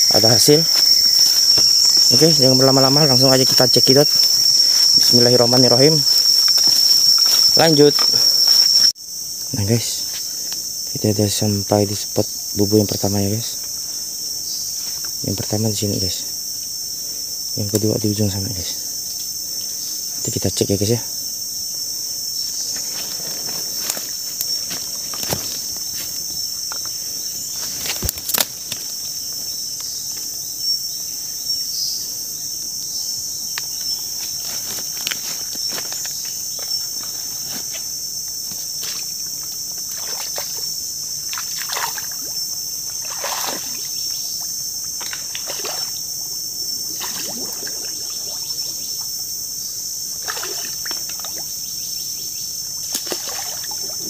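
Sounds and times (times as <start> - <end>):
insects chorus: 0.0 - 54.0
footsteps wading through water: 0.6 - 2.5, 6.0 - 8.9, 39.9 - 40.6, 42.9 - 43.9, 45.0 - 46.0, 47.0 - 48.4.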